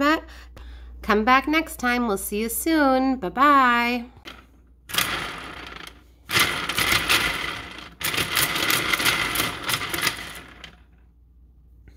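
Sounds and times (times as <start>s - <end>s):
wooden blocks clattering on rods: 4.2s - 11.0s.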